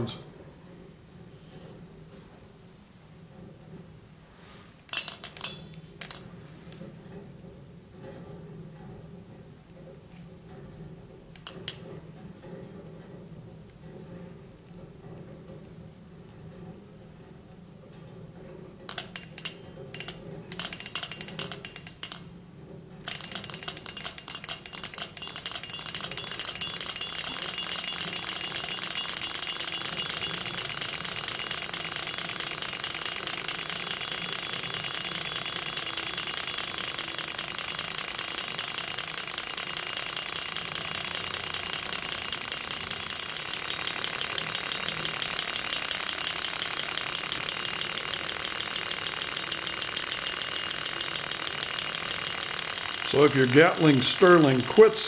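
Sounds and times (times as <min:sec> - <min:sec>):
model engine clattering: 0:18.9 - 0:22.3, 0:23.0 - 0:55.0.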